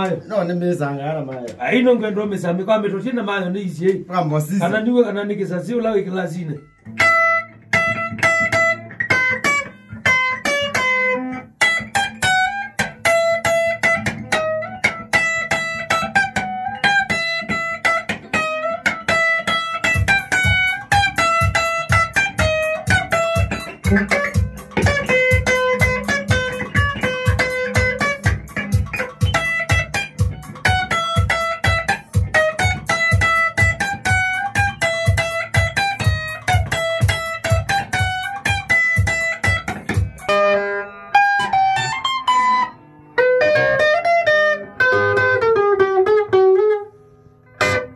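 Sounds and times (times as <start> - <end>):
bass guitar: 0.0 - 47.9
electric lead guitar melody: 0.0 - 47.9
steady drum beat: 19.8 - 40.3.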